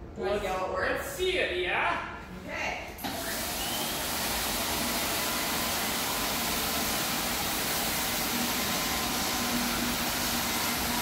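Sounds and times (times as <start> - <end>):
floor scrubber running: 3.0 - 11.0.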